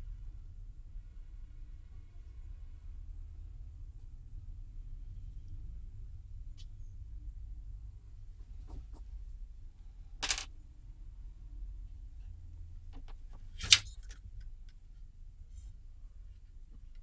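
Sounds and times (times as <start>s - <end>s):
faint low hum: 0.0s - 17.0s
handling noise on a workbench: 10.2s - 10.5s.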